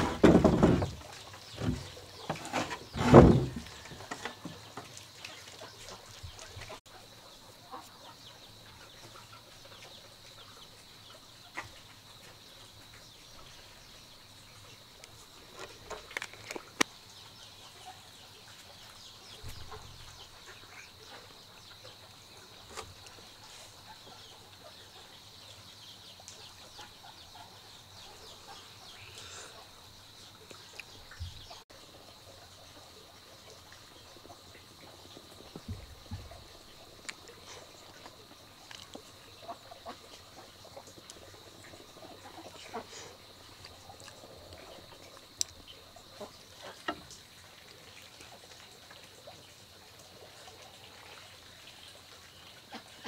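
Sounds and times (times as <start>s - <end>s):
chickens clucking: 0.0s - 13.5s, 32.2s - 47.1s, 52.6s - 53.0s.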